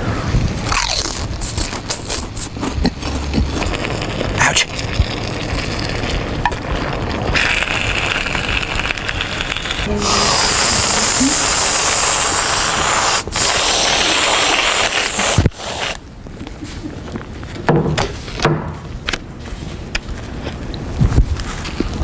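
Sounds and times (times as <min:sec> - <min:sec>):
aerosol can hissing: 0:07.4 - 0:16.0.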